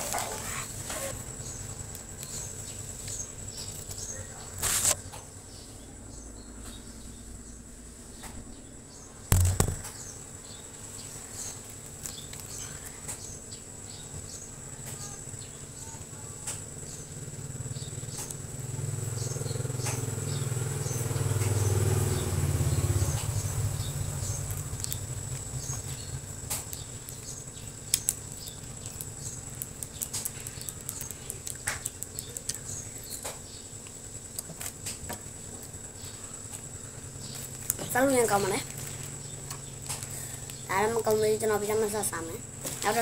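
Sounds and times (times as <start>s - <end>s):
low hum: 0.0s - 11.4s
steady high whine: 0.0s - 11.8s
plastic snack packet crinkling: 24.4s - 33.1s, 38.6s - 39.2s.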